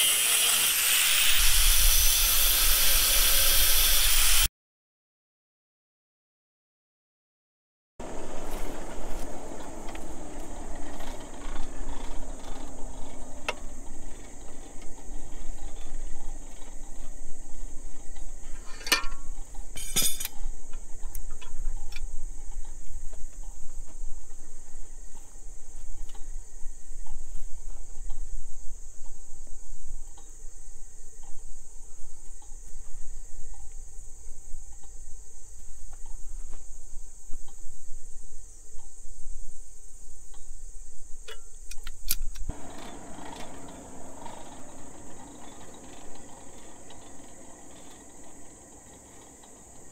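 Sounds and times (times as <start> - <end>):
low hum: 8.0 - 20.3, 42.5 - 49.9
sharp metallic clinks: 18.6 - 20.4
insect chirring: 28.0 - 49.9.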